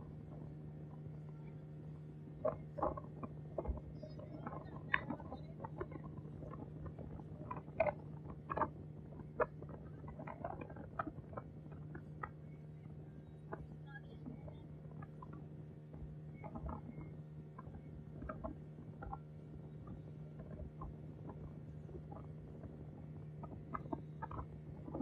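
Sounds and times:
boat engine humming: 0.0 - 25.0.

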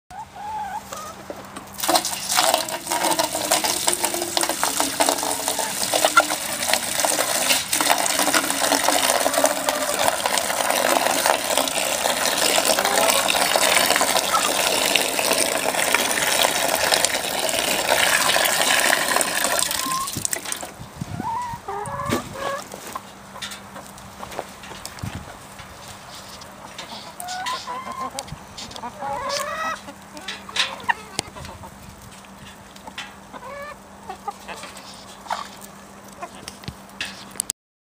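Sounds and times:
hens clucking: 0.1 - 37.4
water pouring and splashing: 1.7 - 20.8.

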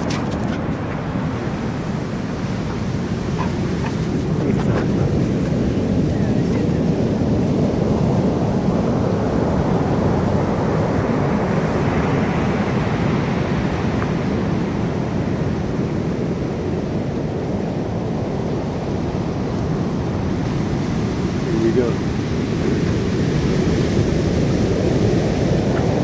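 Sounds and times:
wave washing in: 0.0 - 16.8
surf rumbling: 0.0 - 26.0
wind buffeting microphone: 0.0 - 26.0.

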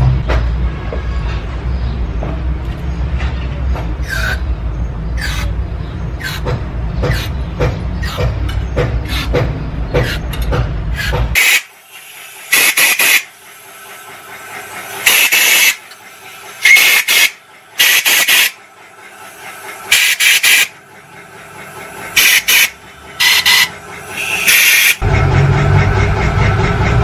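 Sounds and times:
short loud hissing bursts: 11.4 - 18.6, 19.2 - 20.7, 22.2 - 25.0.

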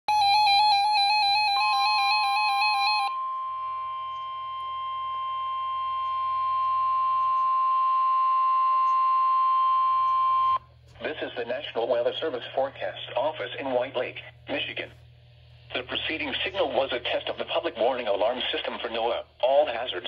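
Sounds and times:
steady high alarm tone: 0.1 - 10.6
two-pitch electronic warble: 0.2 - 10.6.

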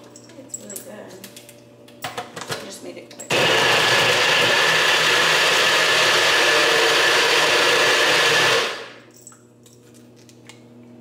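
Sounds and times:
blender running: 3.3 - 9.0.

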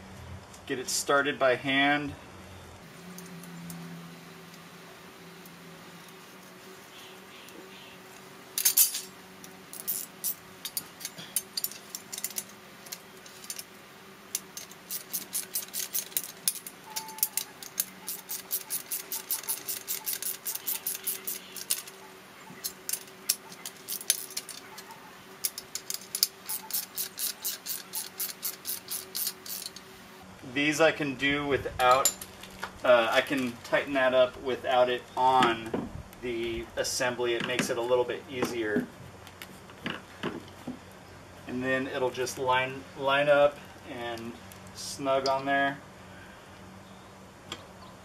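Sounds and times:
socket ratchet clicking: 14.3 - 22.0, 22.6 - 29.9.

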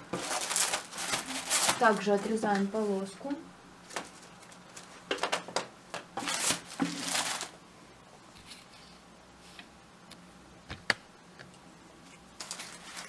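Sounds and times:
crepe paper rustling: 0.0 - 3.1, 3.8 - 5.5, 6.2 - 7.5, 12.4 - 13.0.

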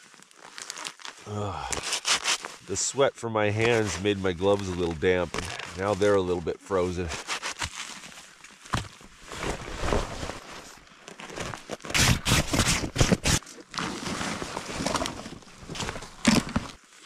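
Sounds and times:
footsteps crunching in frozen snow: 0.0 - 2.7.

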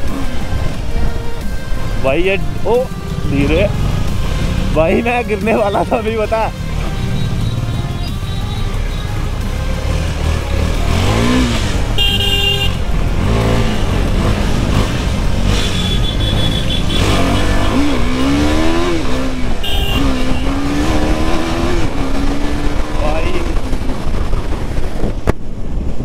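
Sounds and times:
motorcycle engine accelerating: 0.0 - 26.0
vehicle horn honking: 5.5 - 9.7, 11.2 - 12.9, 15.5 - 18.9, 19.6 - 21.0.

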